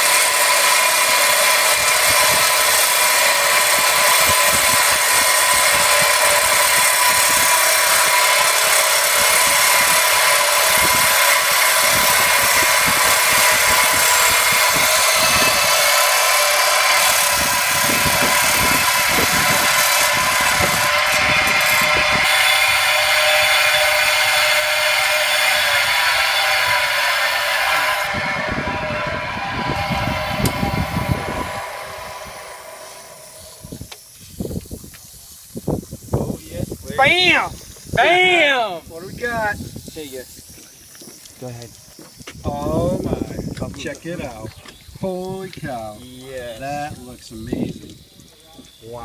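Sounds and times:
wet tile saw cutting shell: 0.0 - 35.0.

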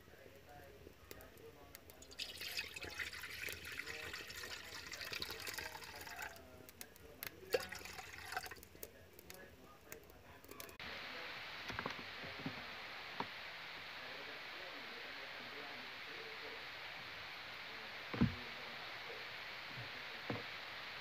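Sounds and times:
steady hiss: 0.0 - 21.0
liquid bubbling in a pot: 0.2 - 10.8.

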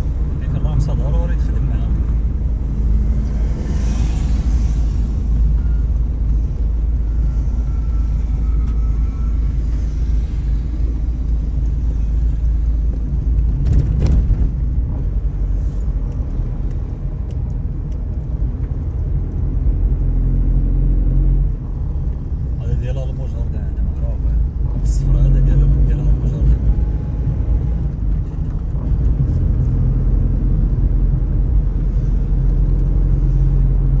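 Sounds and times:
car engine and tyres rumbling: 0.0 - 34.0.

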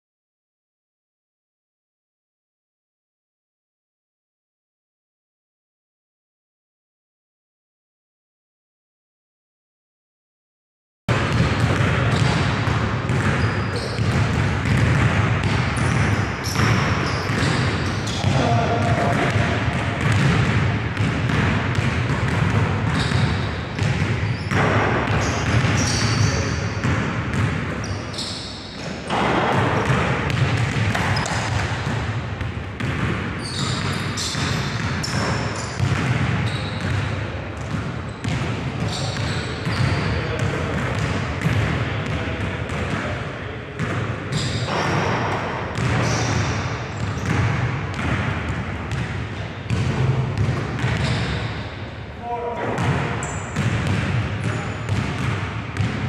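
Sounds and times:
basketballs bouncing on hardwood: 11.1 - 28.0, 28.8 - 43.1, 43.8 - 51.4, 52.7 - 56.0.

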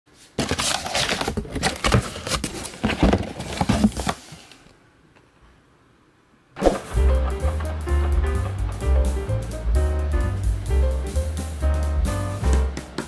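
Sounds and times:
cardboard box rustling and crackling: 0.4 - 4.6.

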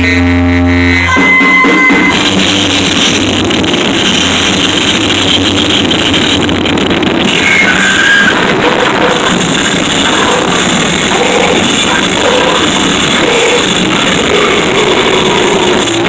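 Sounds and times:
harsh noise music: 0.0 - 16.0
low buzzing drone: 0.0 - 16.0.

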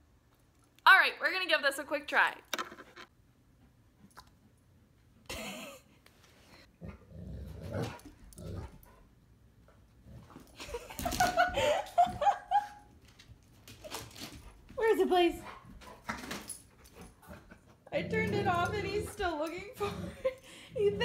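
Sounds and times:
dogs scrambling over floor: 10.2 - 19.6.

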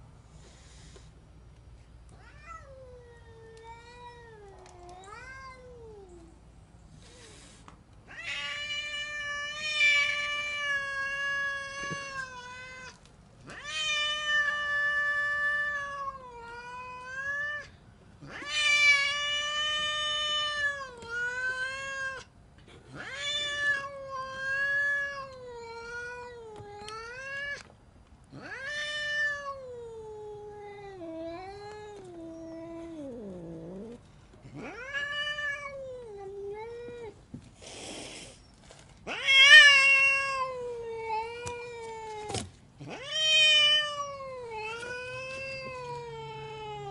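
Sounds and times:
cat growling: 28.3 - 36.8, 42.8 - 46.9
cat yowling: 39.1 - 46.9.

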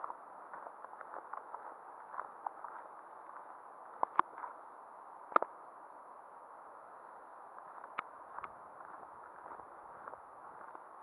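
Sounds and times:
muffled microphone hiss: 0.0 - 11.0.

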